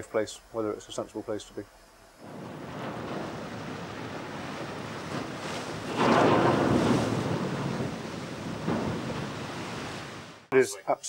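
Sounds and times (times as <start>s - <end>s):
water and ice rushing along hull: 2.2s - 10.5s.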